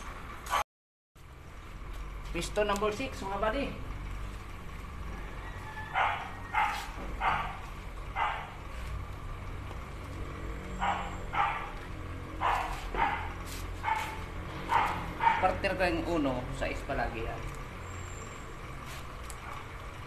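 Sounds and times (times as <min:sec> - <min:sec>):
dog barking: 0:05.8 - 0:08.6, 0:10.8 - 0:15.6.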